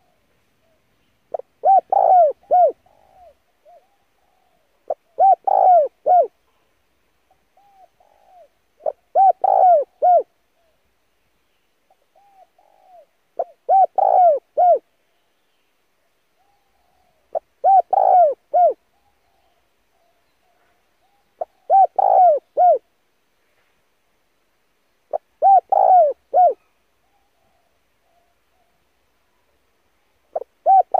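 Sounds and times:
dove cooing: 0:00.0 - 0:06.4, 0:07.6 - 0:10.8, 0:11.9 - 0:14.9, 0:16.4 - 0:22.9, 0:25.1 - 0:28.8, 0:30.3 - 0:30.9.

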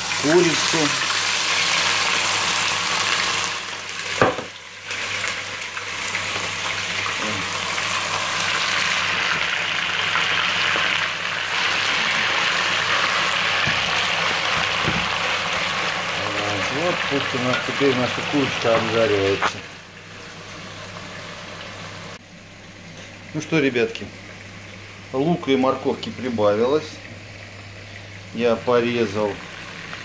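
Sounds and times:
chicken sizzling in hot oil: 0:00.0 - 0:22.2.

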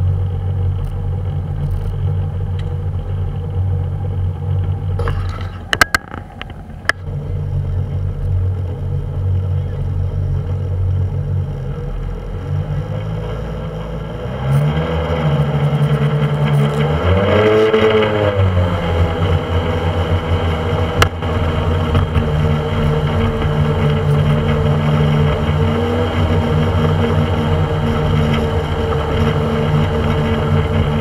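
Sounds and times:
motorboat engine running: 0:00.0 - 0:31.0
water and wind rushing: 0:10.5 - 0:31.0.

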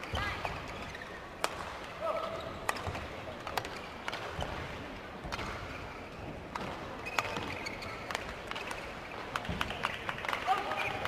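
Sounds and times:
high shoe squeak: 0:07.0 - 0:08.2.

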